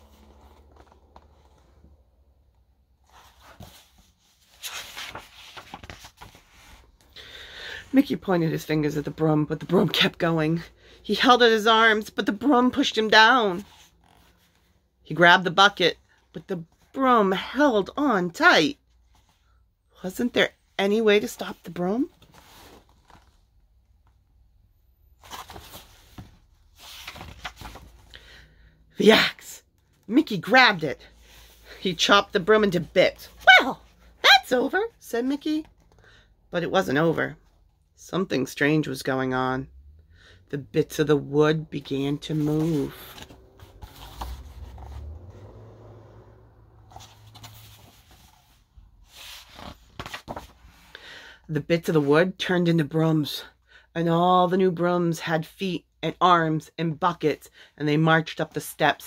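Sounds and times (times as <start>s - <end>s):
book rustling and handling: 0.0s - 7.2s, 11.1s - 14.8s, 18.8s - 19.6s, 21.0s - 24.4s, 25.1s - 28.3s, 29.8s - 34.0s, 35.5s - 36.1s, 41.0s - 51.0s.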